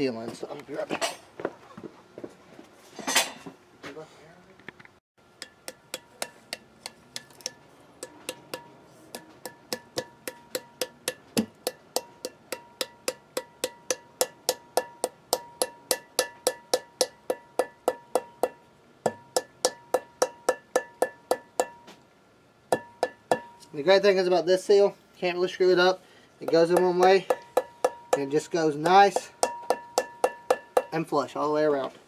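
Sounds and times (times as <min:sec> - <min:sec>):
rubber mallet tapping metal: 0:05.4 - 0:22.0, 0:22.7 - 0:23.7, 0:26.4 - 0:31.0.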